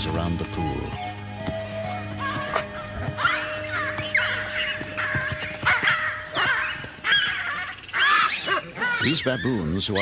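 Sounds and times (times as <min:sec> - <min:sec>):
music drone: 0:00.0 - 0:07.8
shrill animal calls: 0:01.9 - 0:10.0.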